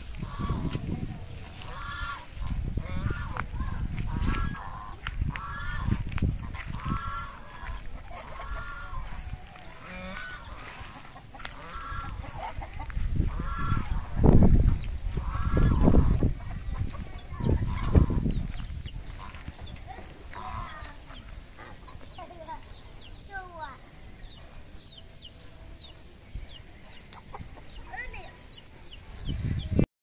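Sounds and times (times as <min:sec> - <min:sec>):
low rumbles on microphone: 0:00.0 - 0:22.2, 0:28.4 - 0:29.9
geese honking: 0:00.0 - 0:22.6
hens clucking: 0:00.0 - 0:29.9.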